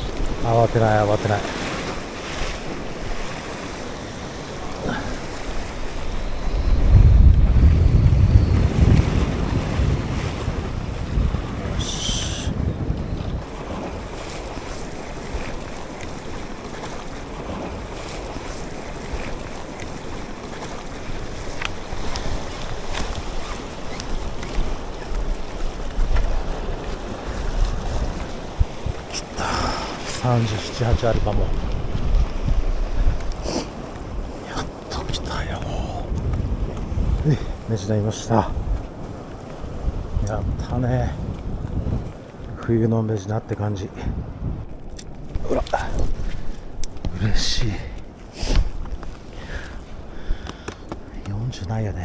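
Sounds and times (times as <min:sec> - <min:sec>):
ocean surf on rocks: 0:00.0 - 0:52.0
wind buffeting microphone: 0:00.0 - 0:52.0
faint clicks: 0:50.4 - 0:51.7.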